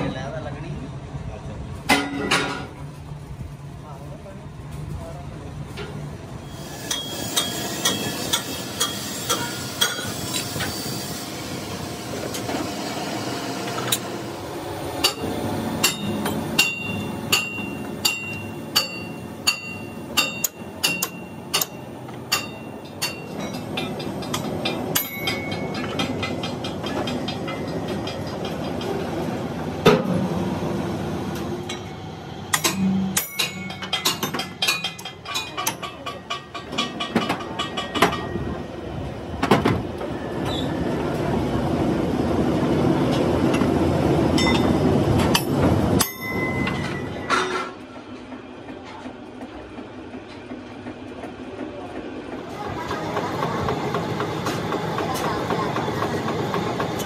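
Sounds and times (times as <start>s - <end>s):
workshop machinery hum: 0.0s - 57.0s
hammer clanging on steel: 6.8s - 10.4s, 15.0s - 28.9s, 32.5s - 38.4s, 45.4s - 47.8s.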